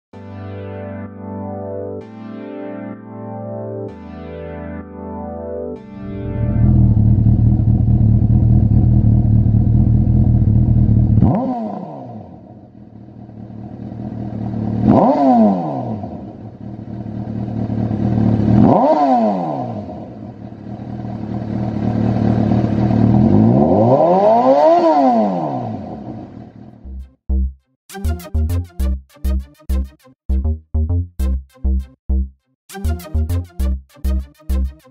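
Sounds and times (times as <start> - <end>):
motorcycle engine revving: 6.0 - 27.0.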